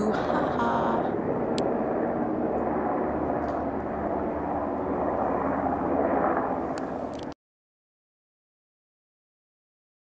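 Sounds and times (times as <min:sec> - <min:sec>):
helicopter drone overhead: 0:00.0 - 0:07.4.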